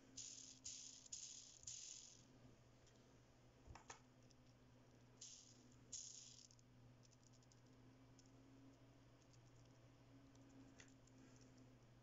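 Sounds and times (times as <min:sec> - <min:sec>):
faint steady hum: 0:00.0 - 0:12.0
plastic ball bearing clicking: 0:00.2 - 0:02.2.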